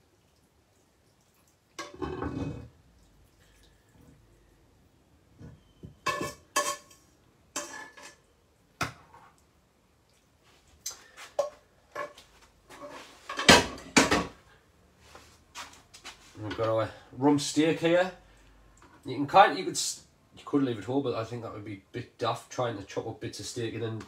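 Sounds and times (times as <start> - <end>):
pan and utensil clattering: 1.8 - 2.7, 6.0 - 8.2, 12.8 - 14.4
metal spoon scraping pan: 7.6 - 8.2.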